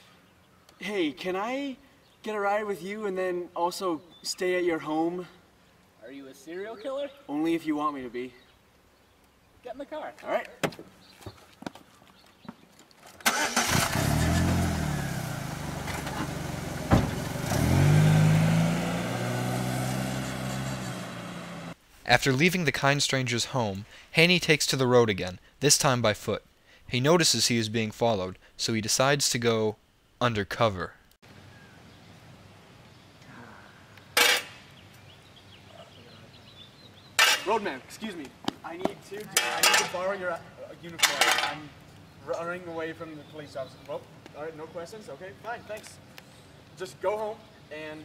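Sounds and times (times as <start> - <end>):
birds chirping: 0.0 - 13.9, 30.3 - 48.0
car driving off: 13.3 - 21.8
car engine revving: 13.3 - 21.8
metal tool clanking on pavement: 34.1 - 34.7, 37.2 - 37.8, 39.2 - 40.2, 40.9 - 41.8.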